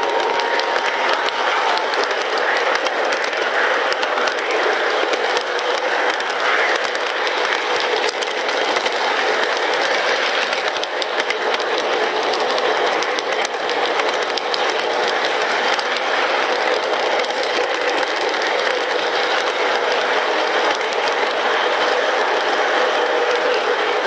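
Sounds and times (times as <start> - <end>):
model train rumbling: 0.0 - 24.0
wheels clicking over track: 0.0 - 24.0.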